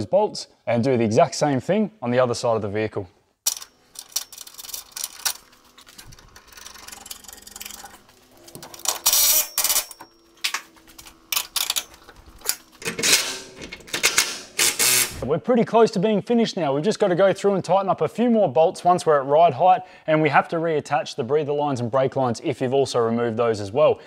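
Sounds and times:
cordless ratchet running: 3.5s - 8.0s, 14.0s - 15.2s
hand ratchet clicking: 11.3s - 15.2s.

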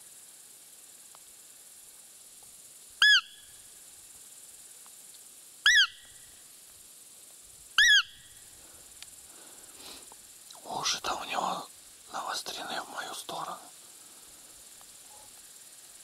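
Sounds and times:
squeaky deer call piping: 3.0s - 3.5s, 5.6s - 6.1s, 7.8s - 8.3s.

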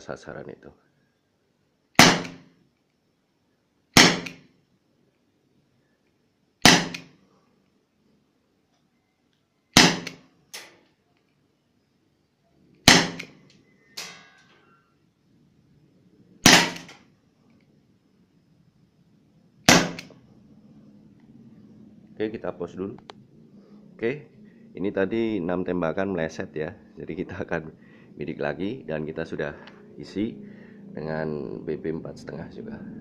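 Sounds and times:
airgun shots: 2.0s - 2.5s, 4.0s - 4.4s, 6.6s - 7.1s, 9.8s - 10.2s, 12.8s - 13.4s, 16.4s - 17.0s, 19.6s - 20.1s.

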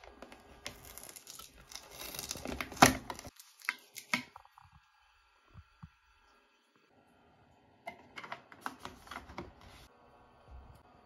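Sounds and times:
plastic tape peeling off: 0.6s - 4.1s.

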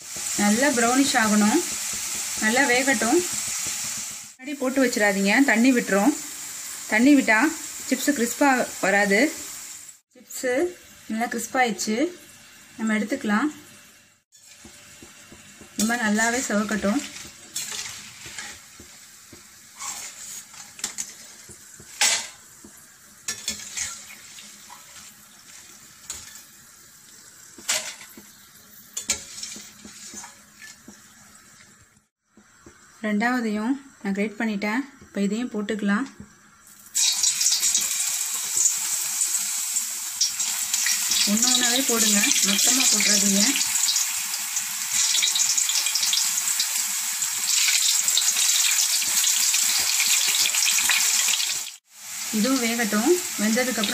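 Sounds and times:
chips sizzling in hot oil: 0.0s - 33.1s, 36.2s - 53.9s
metal skimmer scraping pan: 15.8s - 18.9s, 19.7s - 22.5s, 23.2s - 26.6s, 27.6s - 31.7s.

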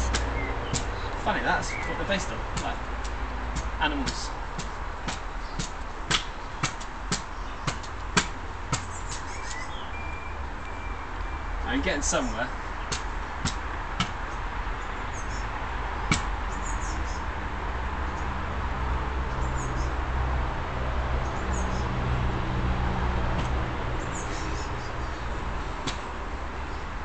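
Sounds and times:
small birds chirping faintly: 0.0s - 17.4s.

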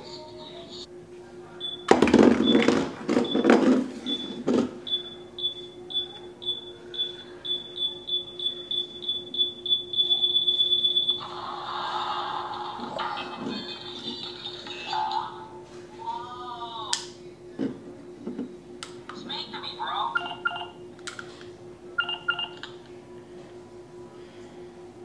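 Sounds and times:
toy robot beeping: 20.1s - 20.7s.

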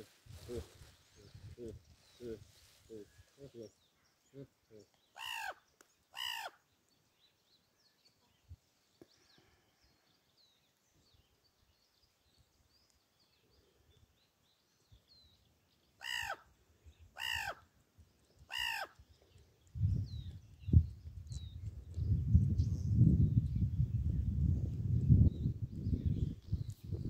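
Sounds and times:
crow cawing: 5.2s - 5.6s, 6.2s - 6.6s, 16.0s - 16.4s, 17.2s - 17.6s, 18.5s - 19.0s.

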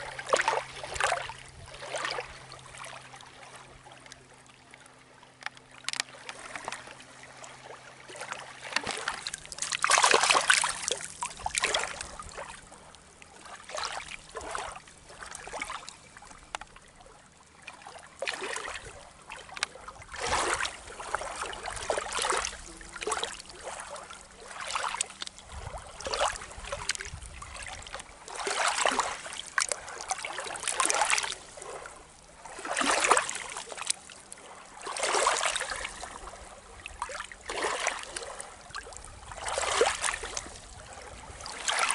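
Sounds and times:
waves lapping against rocky shore: 0.0s - 41.9s.

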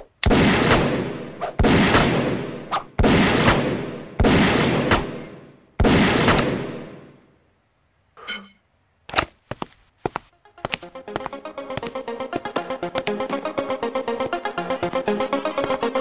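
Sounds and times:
revolver shots echoing: 0.2s - 7.0s.

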